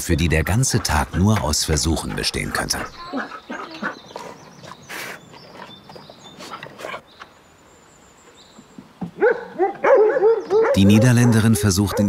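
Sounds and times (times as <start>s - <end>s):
dogs whining and yelping: 2.8s - 7.0s, 9.2s - 12.0s.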